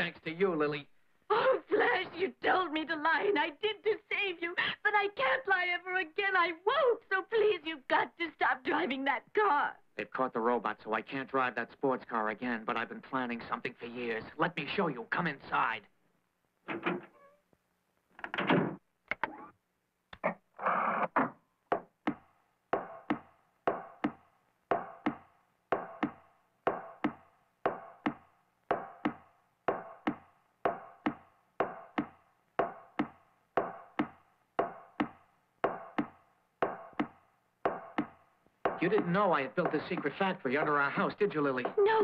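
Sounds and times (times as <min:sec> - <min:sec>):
door opening: 0:16.6 - 0:17.4, 0:18.1 - 0:19.5
footsteps going down stairs: 0:22.8 - 0:42.0.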